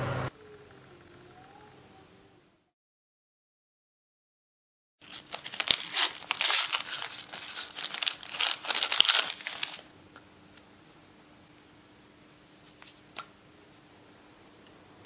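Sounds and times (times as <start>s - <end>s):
low steady hum: 0.0s - 2.7s
plastic packaging tearing: 5.0s - 9.9s.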